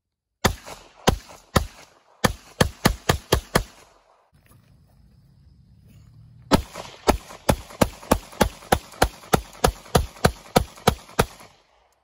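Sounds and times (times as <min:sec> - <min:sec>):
pistol shots: 0:00.4 - 0:04.2, 0:06.5 - 0:11.9.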